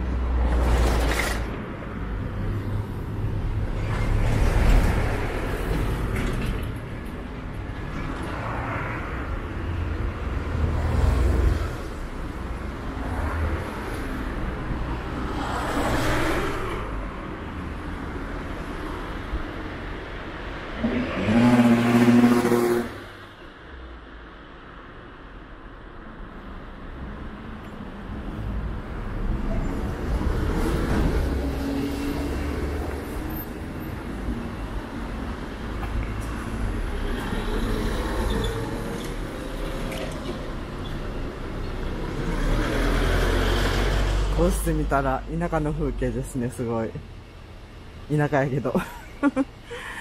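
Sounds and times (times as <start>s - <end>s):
vehicle engine hum: 0.0s - 23.4s
cars and trucks passing: 0.0s - 50.0s
low traffic rumble: 0.0s - 50.0s.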